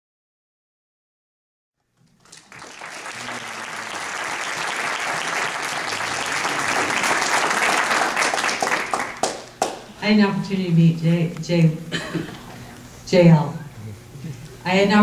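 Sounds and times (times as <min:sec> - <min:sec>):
audience applauding: 0:02.1 - 0:09.9.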